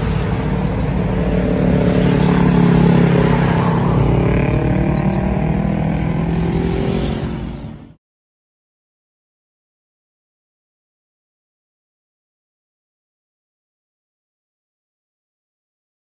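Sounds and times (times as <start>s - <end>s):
cars and scooters passing: 0.0s - 8.0s.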